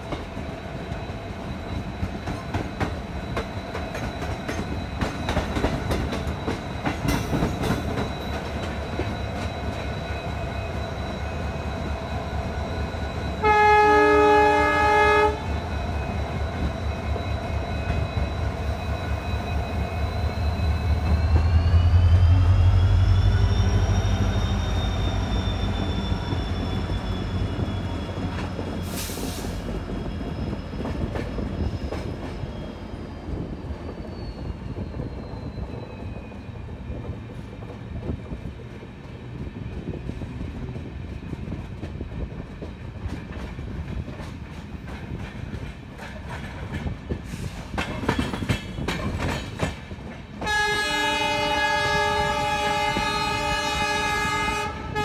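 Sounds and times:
wheels clattering on rail joints: 0.0 - 10.6, 33.5 - 50.6
diesel locomotive engine rumble: 0.0 - 55.0
train wheel squeal: 0.0 - 55.0.

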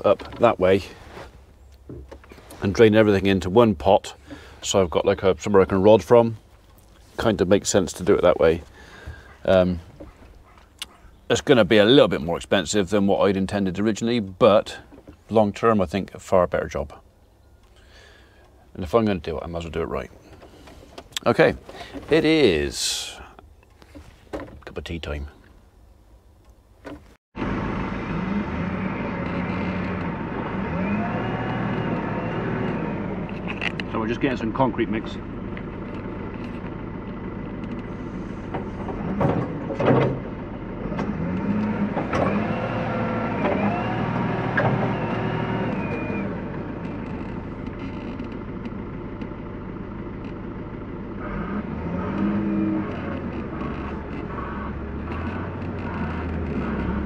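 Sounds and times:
vehicle engine running: 27.4 - 57.0.

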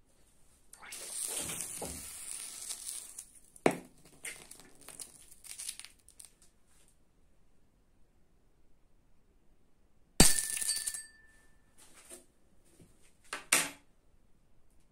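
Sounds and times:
sodium fizzing in water: 0.8 - 6.0.

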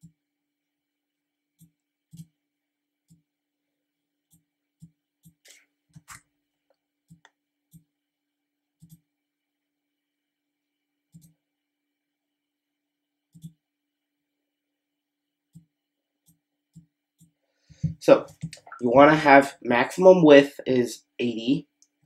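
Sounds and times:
computer mouse clicks: 1.6 - 2.3, 8.8 - 9.0, 11.1 - 11.4, 13.3 - 13.6.

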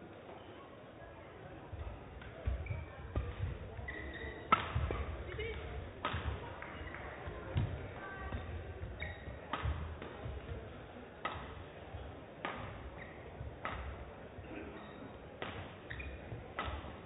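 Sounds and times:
shoes squeaking on court: 1.8 - 10.3, 11.4 - 14.1, 14.7 - 17.0
racket hitting shuttlecock: 4.2 - 10.6, 11.2 - 11.6, 12.4 - 14.1, 15.4 - 17.0.

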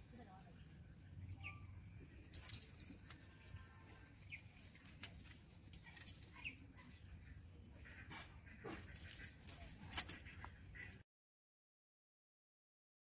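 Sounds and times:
faint bird chirps: 1.0 - 2.6.

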